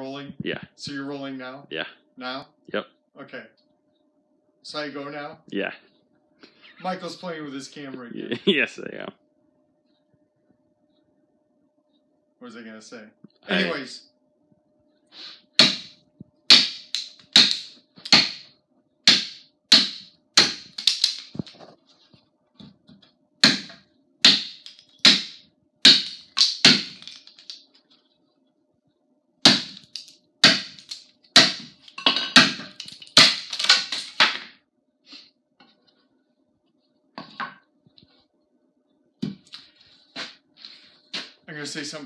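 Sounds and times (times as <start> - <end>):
tomahawk chopping into wood: 15.6 - 18.4, 19.1 - 21.4, 23.4 - 27.2, 29.5 - 34.5.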